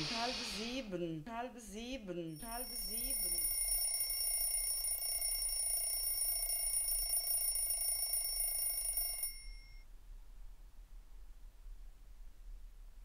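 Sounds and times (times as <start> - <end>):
hiss: 0.0 - 0.8
high-pitched electronic ringing: 2.4 - 9.8.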